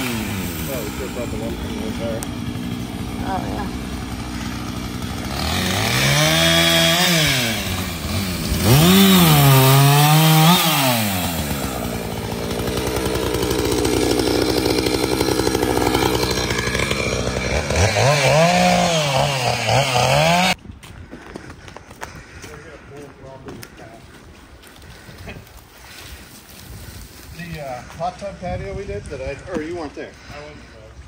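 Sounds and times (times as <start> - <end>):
chainsaw cutting wood: 0.0 - 20.6.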